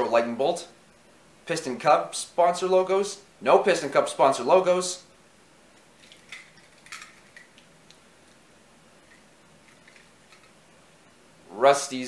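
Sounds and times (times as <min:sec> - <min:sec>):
toy cars clicking and knocking: 0:06.0 - 0:07.6, 0:09.6 - 0:10.5.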